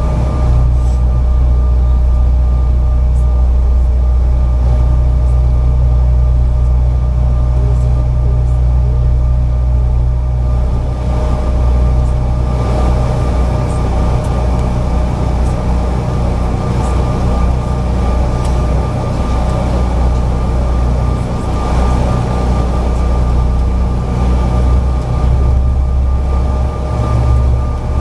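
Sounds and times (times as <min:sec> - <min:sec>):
jet engines droning and whining: 0:00.0 - 0:28.0.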